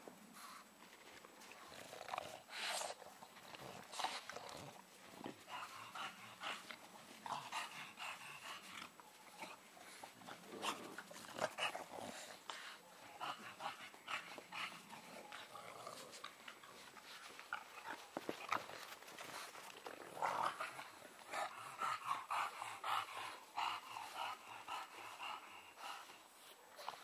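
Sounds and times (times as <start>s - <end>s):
puppies scuffling: 14.3s - 20.5s.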